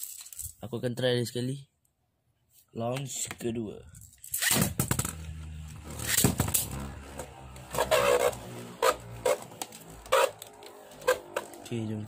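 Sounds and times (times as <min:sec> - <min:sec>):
scraping whir of spinning tops: 0:04.3 - 0:11.7.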